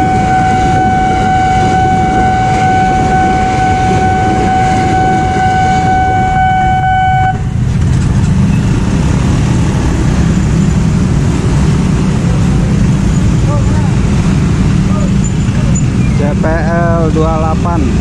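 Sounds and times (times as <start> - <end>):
level crossing alarm tone: 0.0 - 7.4
motorcycle engines: 0.0 - 18.0
train rumbling past: 0.0 - 18.0.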